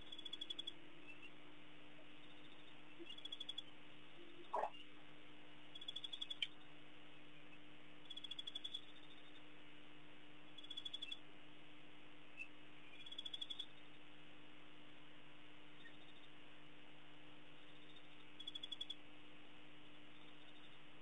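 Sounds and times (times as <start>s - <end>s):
low electrical hum: 0.0s - 21.0s
animal rattling trills: 4.5s - 4.8s.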